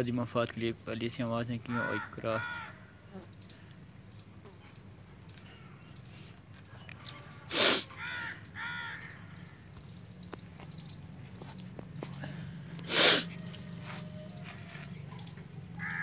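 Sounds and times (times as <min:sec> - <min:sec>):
crow cawing: 0:01.6 - 0:03.1, 0:07.9 - 0:09.7, 0:15.8 - 0:16.0
loud breathy burst of noise: 0:07.5 - 0:07.9, 0:12.8 - 0:13.3.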